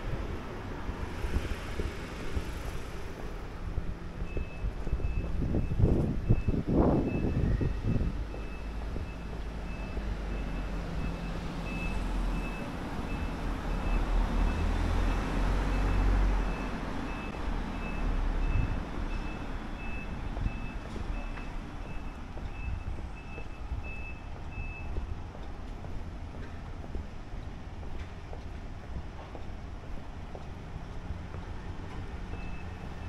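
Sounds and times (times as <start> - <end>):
road traffic rumble: 0.0 - 33.0
electronic warning beeps: 4.3 - 25.0, 32.3 - 33.0.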